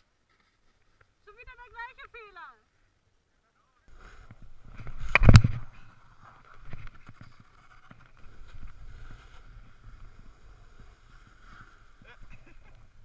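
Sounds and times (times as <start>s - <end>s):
snowboard scraping hiss: 3.9s - 13.0s
wind rumble on microphone: 4.2s - 13.0s.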